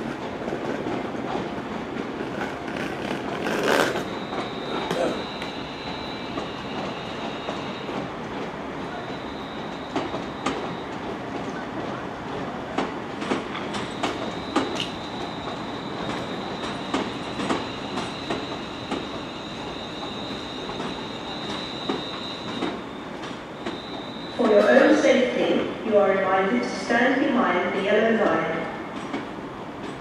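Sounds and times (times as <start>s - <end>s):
train rumbling on track: 0.0s - 30.0s
thin high whine: 3.4s - 7.9s, 13.9s - 25.2s.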